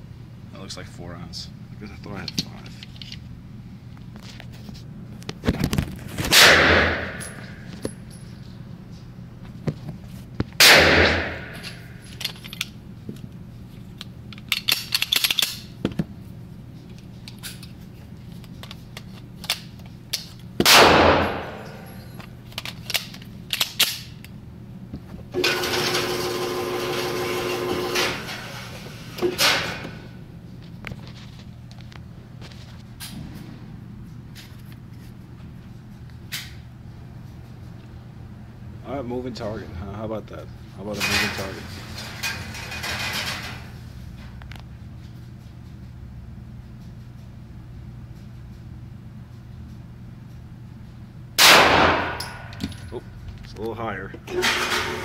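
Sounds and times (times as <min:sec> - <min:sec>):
gunshots echoing indoors: 0:06.3 - 0:07.6, 0:10.6 - 0:12.0, 0:20.6 - 0:22.0, 0:51.4 - 0:52.5.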